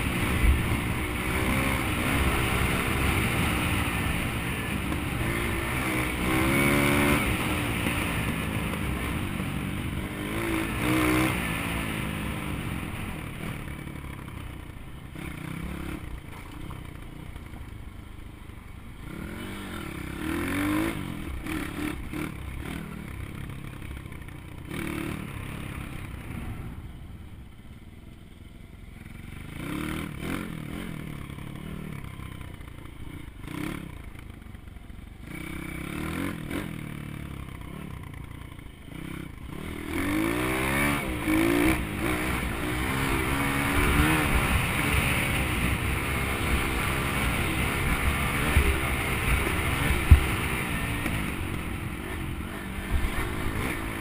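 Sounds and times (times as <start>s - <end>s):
small motorbike engine revving: 0.0s - 14.0s, 29.1s - 34.1s, 35.2s - 54.0s.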